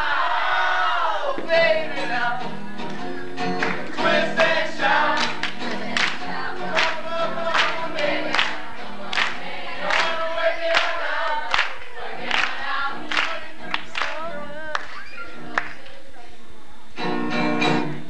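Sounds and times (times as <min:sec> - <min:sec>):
voices singing: 0:00.0 - 0:16.5
acoustic guitar: 0:00.0 - 0:18.0
sharp hand claps: 0:02.8 - 0:04.5, 0:05.2 - 0:10.9, 0:11.5 - 0:16.0.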